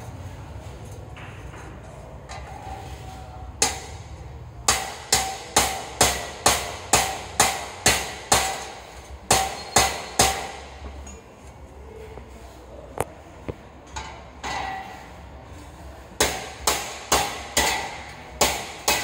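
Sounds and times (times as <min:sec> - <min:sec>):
hammer striking metal ring: 0:04.7 - 0:11.2.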